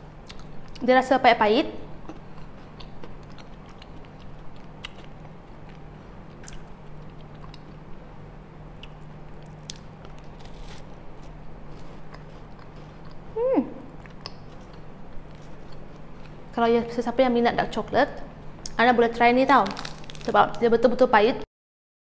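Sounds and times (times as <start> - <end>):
person chewing: 0.2 - 0.8, 1.9 - 7.9, 8.7 - 16.5.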